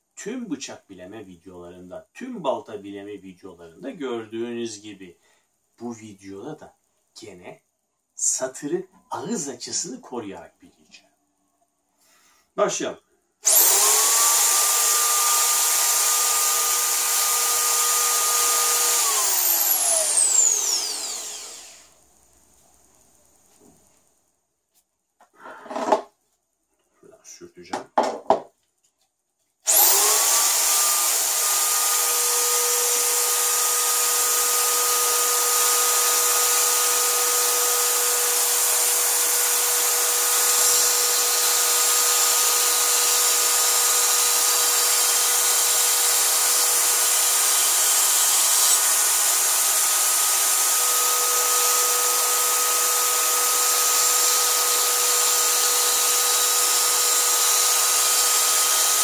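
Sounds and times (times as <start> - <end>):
electric drill whining: 13.4 - 22.0, 29.6 - 59.0.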